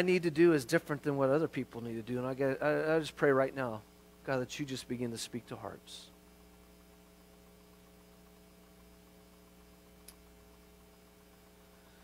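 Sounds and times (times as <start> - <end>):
faint electrical hum: 0.0 - 12.0
faint click: 10.0 - 10.7.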